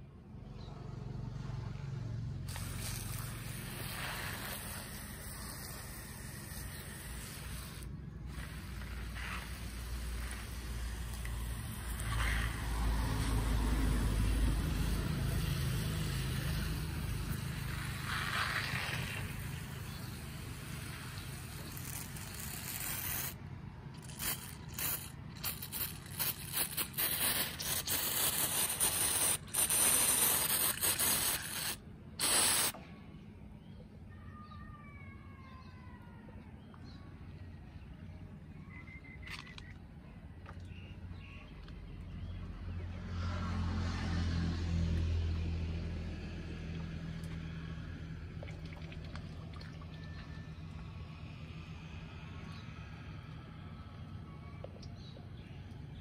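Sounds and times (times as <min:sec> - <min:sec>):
sprayer bursts and rattles: 0:02.4 - 0:32.8
pump sprayer hissing: 0:02.5 - 0:23.4, 0:24.0 - 0:32.8.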